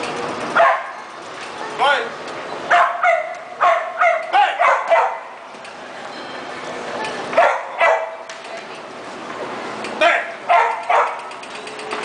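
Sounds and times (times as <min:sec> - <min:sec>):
dog yipping: 0:00.6 - 0:01.1, 0:02.7 - 0:05.4, 0:07.4 - 0:08.3, 0:10.5 - 0:11.4.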